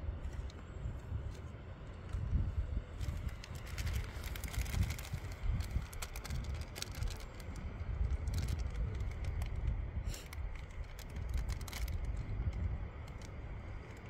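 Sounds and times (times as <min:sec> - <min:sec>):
wind buffeting microphone: 0:00.0 - 0:14.0
small items clicking and rustling: 0:02.9 - 0:14.0.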